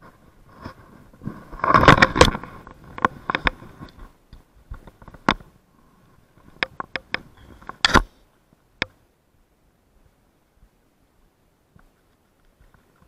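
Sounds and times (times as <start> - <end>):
sharp clicks and knocks: 1.6 - 5.5, 6.4 - 8.1, 8.8 - 9.0.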